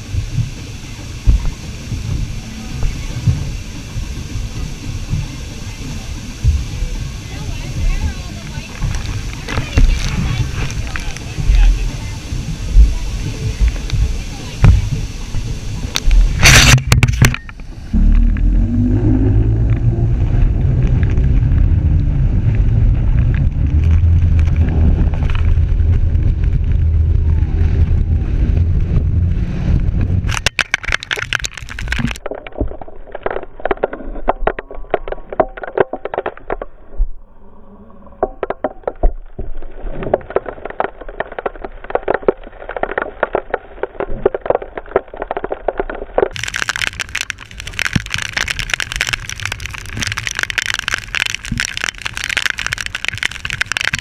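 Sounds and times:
outboard motor drone: 0.0 - 30.7
wind buffeting microphone: 0.0 - 32.2.

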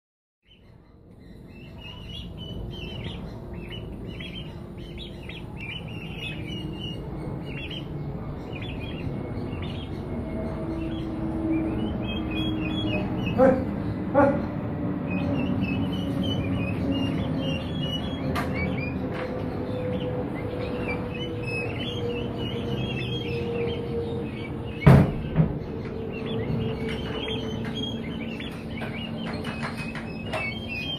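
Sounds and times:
poults peeping: 0.4 - 30.9
steady low hum: 0.5 - 30.9.

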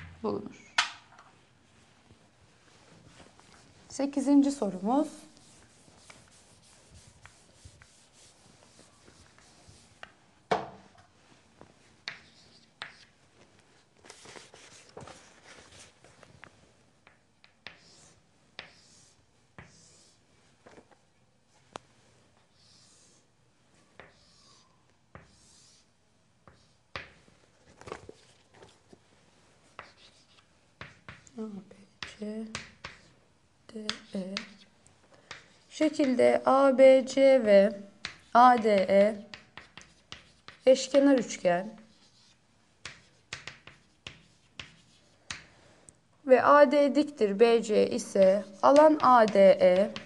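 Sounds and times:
chalk scratching on chalkboard: 5.0 - 10.1, 12.0 - 13.1, 14.1 - 15.9, 17.6 - 20.2, 22.5 - 23.3, 23.9 - 26.9, 29.7 - 31.3, 38.0 - 45.4
chalk tapping on board: 5.4 - 8.4, 12.0 - 13.1, 17.0 - 19.9, 29.8 - 31.3, 32.0 - 33.1, 33.8 - 34.7, 35.3 - 36.2, 38.0 - 45.5, 48.1 - 50.0.

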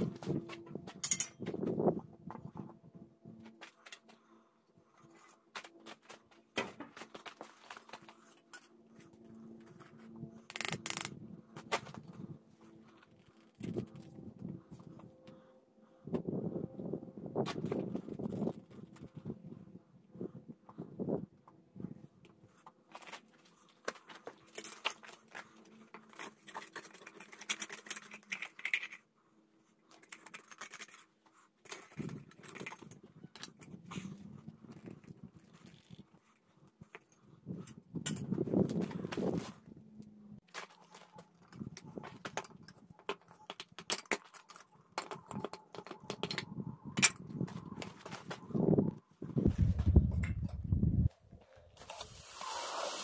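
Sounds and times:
steel skimmer scraping crucible: 51.8 - 53.0.

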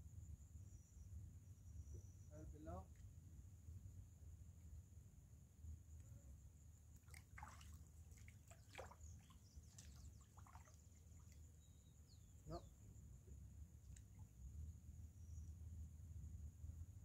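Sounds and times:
feet wading in shallow water: 7.0 - 11.7.

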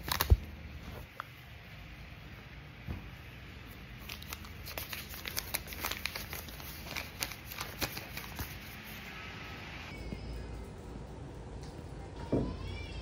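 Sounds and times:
paper crinkling and rustling: 0.0 - 1.3, 3.9 - 9.1.

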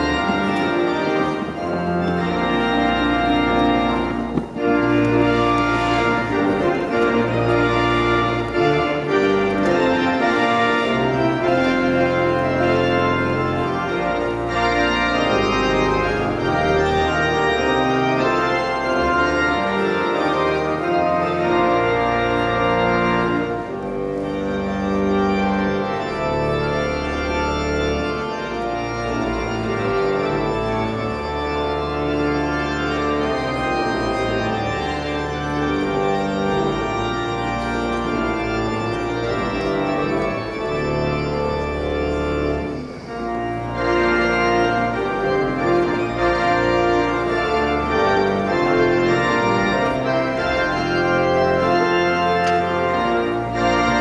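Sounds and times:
organ playing held chords: 0.0 - 54.0.

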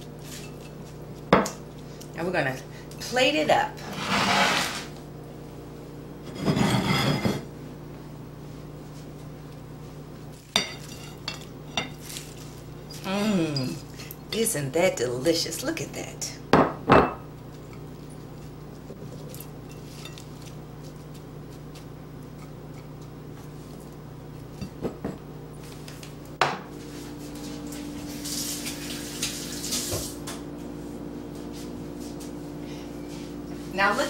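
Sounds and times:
steady low hum: 0.0 - 34.0
plates and dishes clinking: 6.3 - 7.5.

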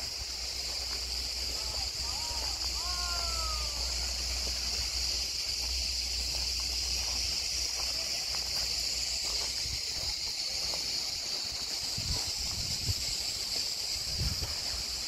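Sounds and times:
cicadas chorus: 0.0 - 15.0
faint footsteps: 0.0 - 15.0
wind rumble on microphone: 11.8 - 15.0.

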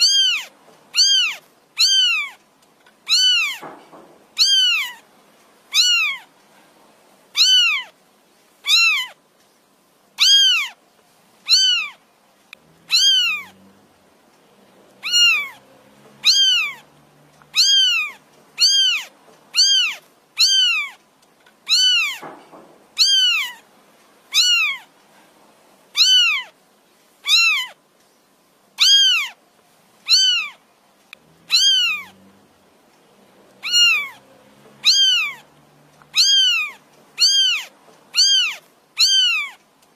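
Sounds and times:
kitten meowing: 0.0 - 2.4, 3.0 - 3.8, 4.4 - 5.0, 5.7 - 6.3, 7.4 - 8.0, 8.6 - 9.2, 10.2 - 10.8, 11.4 - 12.0, 12.8 - 13.6, 15.0 - 15.6, 16.2 - 21.0, 21.6 - 22.3, 23.0 - 23.6, 24.3 - 24.9, 26.0 - 26.6, 27.2 - 27.8, 28.8 - 29.4, 30.0 - 30.6, 31.4 - 32.2, 33.6 - 34.2, 34.8 - 39.6.

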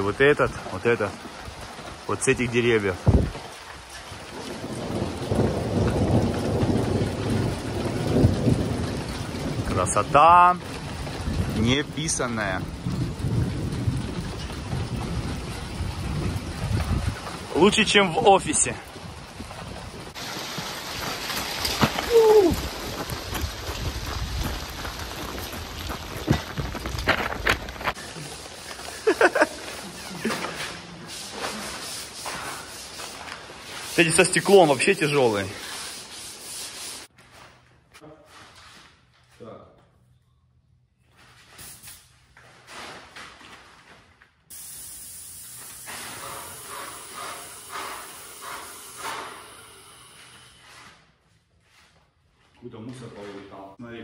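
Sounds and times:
rain falling: 0.0 - 37.1, 44.5 - 50.4
paint spray gun hissing: 41.6 - 42.1, 44.5 - 50.6.

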